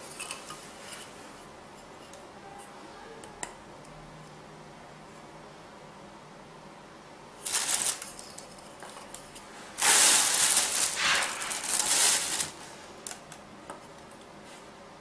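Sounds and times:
plastic bag crinkling and rustling: 0:07.4 - 0:08.5, 0:09.7 - 0:12.8.

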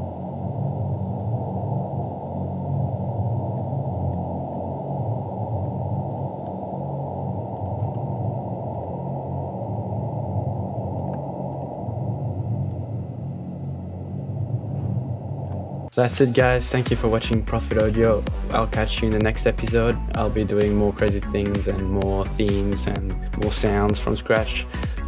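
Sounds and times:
synthesized breathing sound: 0:00.0 - 0:15.9, 0:24.6 - 0:25.0
muffled noise wash: 0:00.0 - 0:24.7
low hum: 0:00.0 - 0:25.0
faint clicks: 0:07.5 - 0:08.1, 0:08.7 - 0:09.0, 0:10.9 - 0:11.8.

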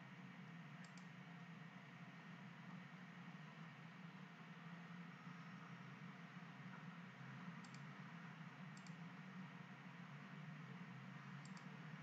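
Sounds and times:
low background hum: 0:00.0 - 0:12.0
computer mouse clicks: 0:00.8 - 0:01.2, 0:07.6 - 0:07.9, 0:08.7 - 0:09.0, 0:11.4 - 0:11.8.

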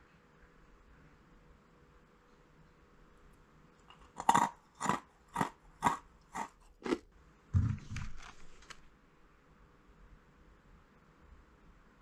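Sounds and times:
crunchy snack chewing: 0:03.9 - 0:07.1
low thump: 0:07.6 - 0:08.2
plastic packaging rustling: 0:07.8 - 0:08.9.

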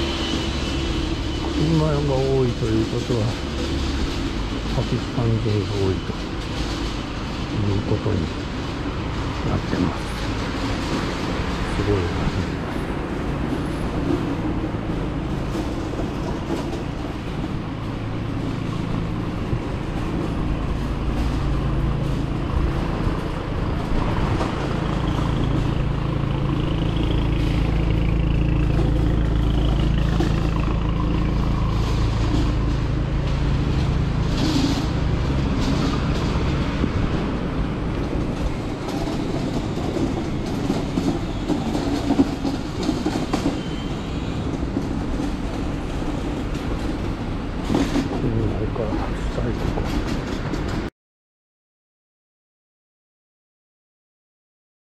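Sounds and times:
city street noise: 0:00.0 - 0:50.9
vehicle engine running: 0:24.0 - 0:36.6.

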